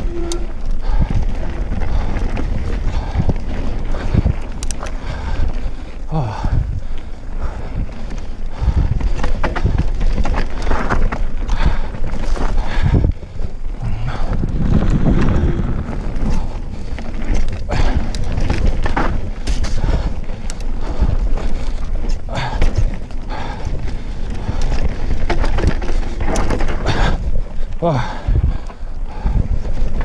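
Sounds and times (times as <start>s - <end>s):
bike rattling and knocking: 0.0s - 30.0s
bike tyres rolling on dirt: 0.0s - 30.0s
wind on microphone: 0.0s - 30.0s.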